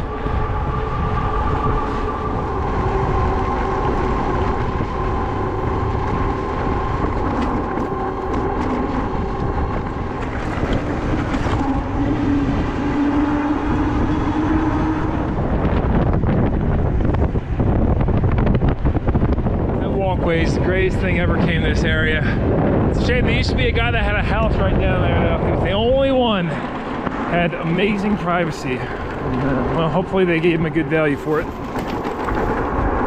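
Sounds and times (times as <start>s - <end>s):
wind rumble on microphone: 0.0s - 33.0s
light rattles over bumps: 22.9s - 33.0s.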